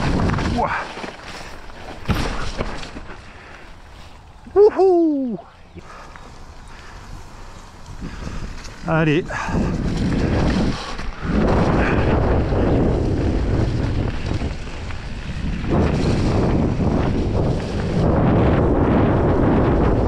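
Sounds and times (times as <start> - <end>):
wind buffeting microphone: 0.0 - 1.0, 5.3 - 20.0.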